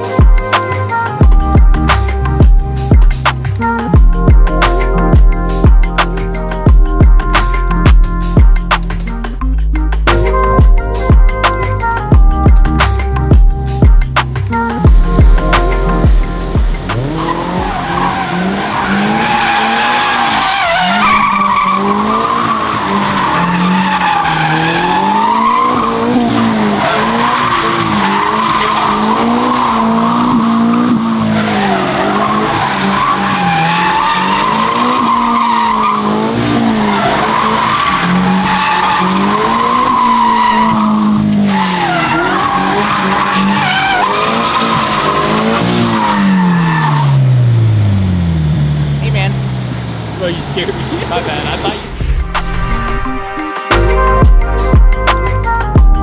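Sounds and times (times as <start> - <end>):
car engine revving: 0.0 - 55.8
tyres squealing: 17.0 - 47.4.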